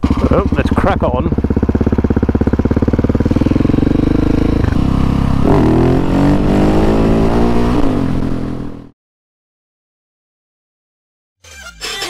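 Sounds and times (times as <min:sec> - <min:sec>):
motorcycle engine revving: 0:00.0 - 0:08.9.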